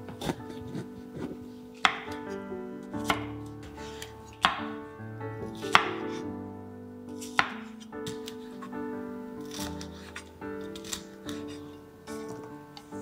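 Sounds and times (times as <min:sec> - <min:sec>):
background music: 0:00.0 - 0:13.0
knife chopping on wooden board: 0:00.1 - 0:02.1, 0:03.0 - 0:03.3, 0:05.4 - 0:06.1, 0:07.3 - 0:07.6.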